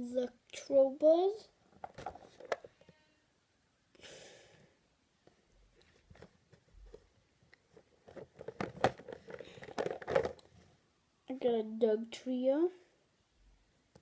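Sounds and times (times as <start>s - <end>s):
plastic container clicks and rustles: 1.7s - 2.8s, 5.8s - 7.1s, 7.7s - 10.6s
soft breath: 3.9s - 4.8s, 9.3s - 9.9s.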